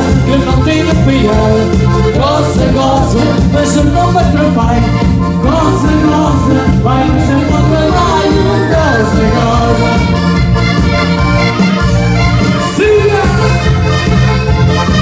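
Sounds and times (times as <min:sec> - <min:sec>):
person singing: 0:00.0 - 0:10.3
accordion melody: 0:00.0 - 0:15.0
live band dance music: 0:00.0 - 0:15.0.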